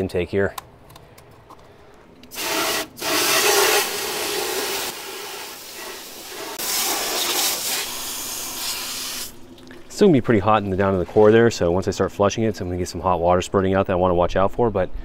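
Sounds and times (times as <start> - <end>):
water spraying on hot metal: 2.3 - 9.4.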